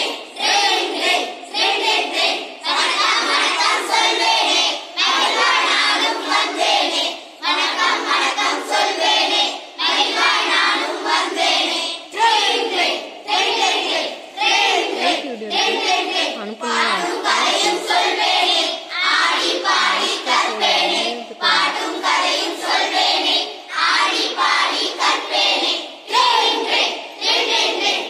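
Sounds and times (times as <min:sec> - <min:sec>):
children singing: 0:00.0 - 0:28.0.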